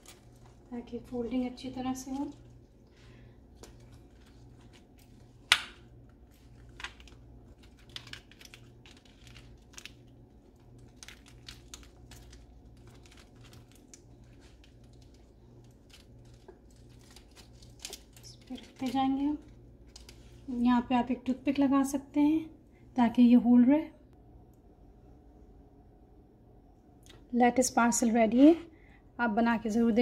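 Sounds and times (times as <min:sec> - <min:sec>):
lettuce leaves crinkling: 0:00.0 - 0:20.6.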